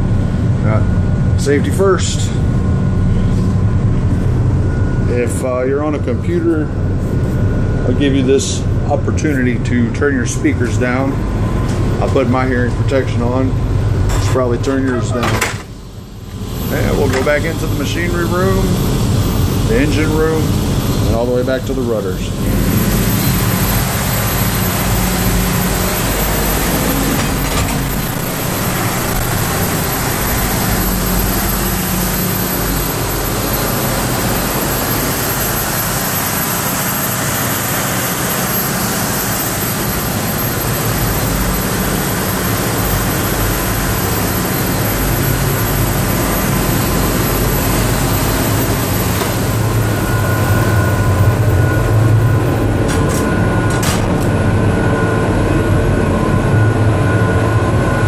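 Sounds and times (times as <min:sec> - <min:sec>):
diesel engines din: 0:00.0 - 0:58.0
steady high tones: 0:14.7 - 0:55.6.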